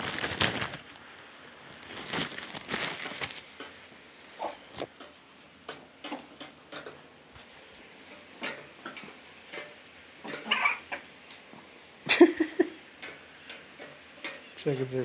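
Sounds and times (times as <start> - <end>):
chickens rustling in wood shavings: 0.0 - 6.6, 7.3 - 9.2, 10.2 - 11.7
chickens pecking taps: 4.4 - 7.5, 12.4 - 14.8.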